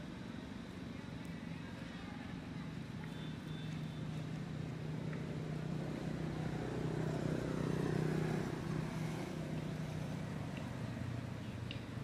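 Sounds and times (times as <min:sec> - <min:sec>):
vehicle engine passing: 0:05.5 - 0:11.3.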